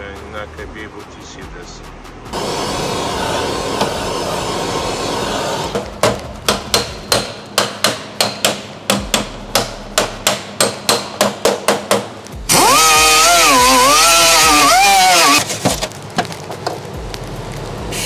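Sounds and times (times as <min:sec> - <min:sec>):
steady hiss: 0:00.0 - 0:11.2, 0:14.7 - 0:18.0
hammer striking metal: 0:05.7 - 0:13.1.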